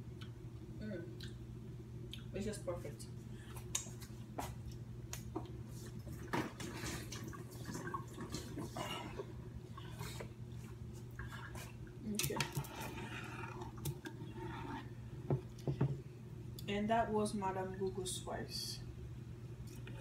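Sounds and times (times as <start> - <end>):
low steady hum: 0.0 - 20.0
water boiling in pot: 5.9 - 15.5.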